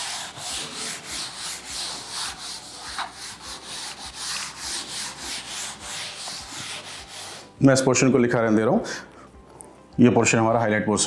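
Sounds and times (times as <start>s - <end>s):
duster rubbing a chalkboard: 0.0s - 7.6s.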